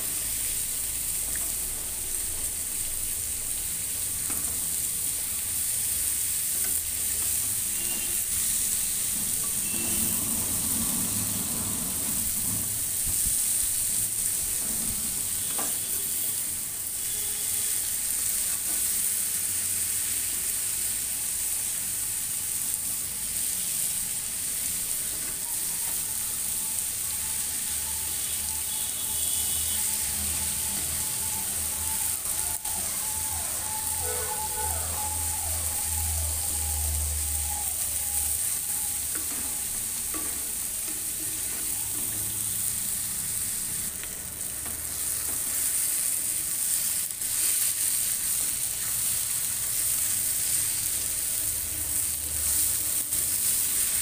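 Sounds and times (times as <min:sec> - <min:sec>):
vegetables sizzling in a pan: 0:00.0 - 0:54.0
spatula scraping a pan: 0:06.6 - 0:13.0.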